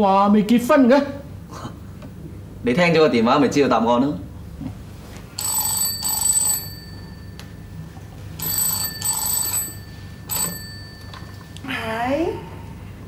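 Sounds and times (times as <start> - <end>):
telephone bell ringing: 5.4 - 11.6.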